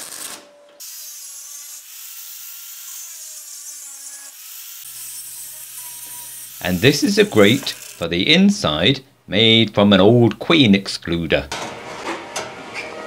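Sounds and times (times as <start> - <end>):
angle grinder cutting steel wire: 0.0 - 8.1
arc welding crackling: 0.0 - 8.1.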